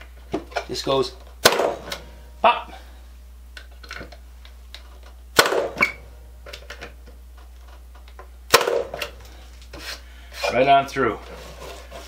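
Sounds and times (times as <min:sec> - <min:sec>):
nailer firing pop: 0:01.4 - 0:02.0, 0:05.3 - 0:06.0, 0:08.5 - 0:09.2.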